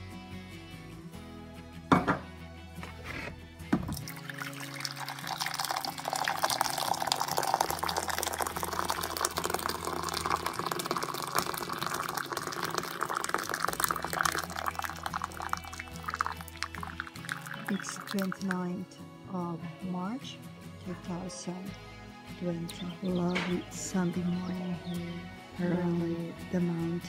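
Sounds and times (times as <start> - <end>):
soft background music: 0.0 - 27.0
knock: 1.9 - 2.3, 3.7 - 4.0
water pouring into mug: 3.8 - 18.7.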